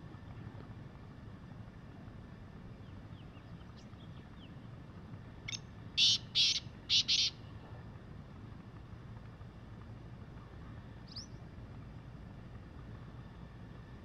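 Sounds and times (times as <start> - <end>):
francolin calling: 5.5 - 7.4.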